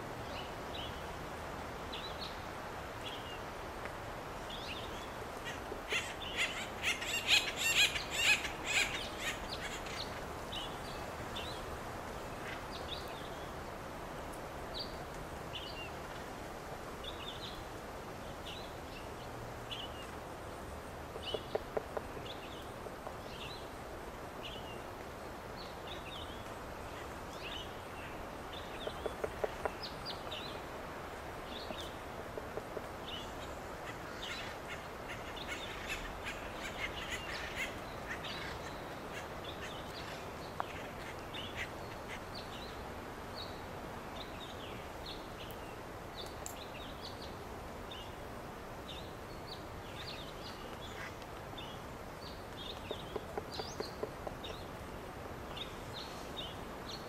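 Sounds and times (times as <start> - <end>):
woodpeckers raucous calling: 5.4 - 10.6, 28.6 - 30.4, 52.6 - 54.7
woodpecker drumming on wood: 21.2 - 22.1, 28.8 - 29.8, 32.3 - 33.0, 52.8 - 54.7.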